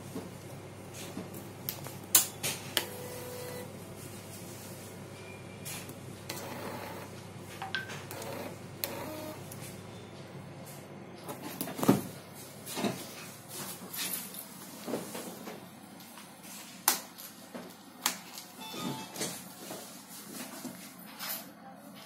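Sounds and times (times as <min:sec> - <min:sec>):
short beeps: 0:18.6 - 0:19.2.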